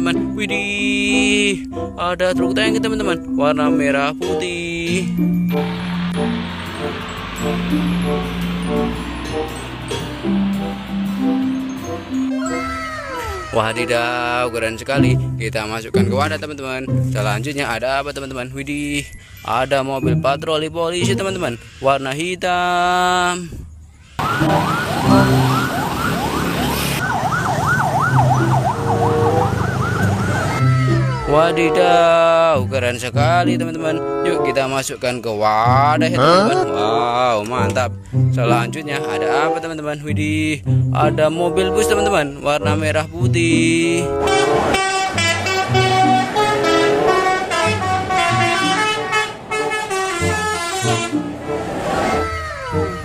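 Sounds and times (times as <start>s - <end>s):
street noise: 4.2s - 15.6s, 23.5s - 32.3s, 43.4s - 53.0s
bus musical horn playing tune: 5.6s - 12.8s, 24.2s - 25.9s, 28.8s - 32.2s, 33.8s - 34.6s, 38.7s - 39.6s, 41.4s - 42.2s, 44.0s - 51.4s
police siren: 24.2s - 30.8s.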